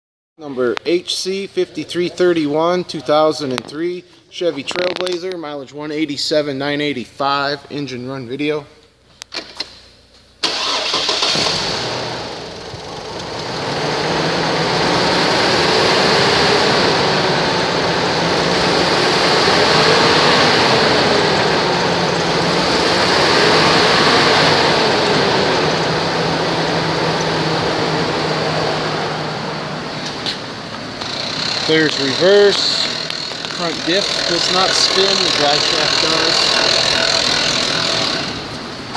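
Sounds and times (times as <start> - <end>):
faint engine whine: 1.5 - 38.9
car engine idling: 10.3 - 38.9.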